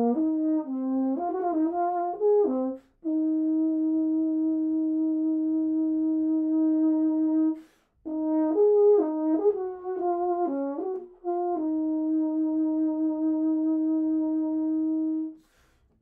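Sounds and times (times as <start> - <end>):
quick breath: 7.6 - 8.0, 15.4 - 16.0.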